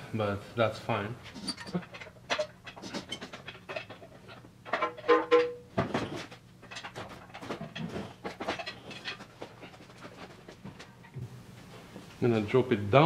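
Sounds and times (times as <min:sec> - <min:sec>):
metal clanks and knocks: 0:01.3 - 0:11.3.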